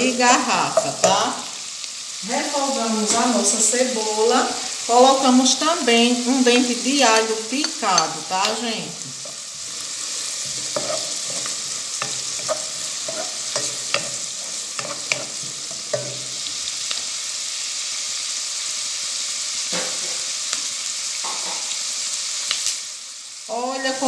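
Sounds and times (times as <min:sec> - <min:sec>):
onion sizzling in butter: 0:00.0 - 0:24.0
wooden spoon stirring and tapping: 0:10.4 - 0:16.4.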